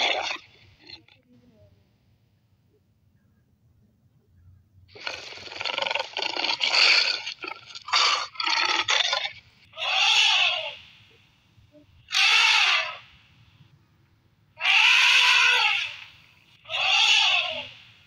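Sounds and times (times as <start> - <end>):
elephant trumpeting: 7.8 - 10.8, 12.1 - 13.0, 14.6 - 16.0, 16.7 - 17.7.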